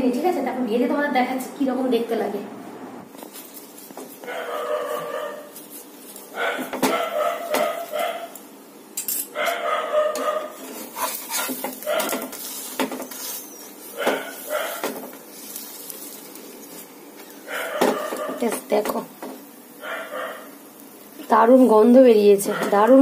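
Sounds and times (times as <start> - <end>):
spoon and spatula scraping a frying pan: 9.0 - 19.4.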